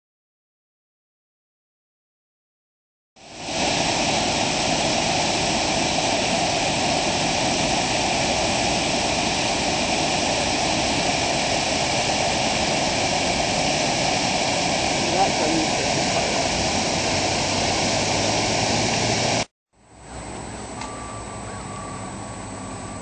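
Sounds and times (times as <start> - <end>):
water rushing over small falls: 3.2 - 19.5.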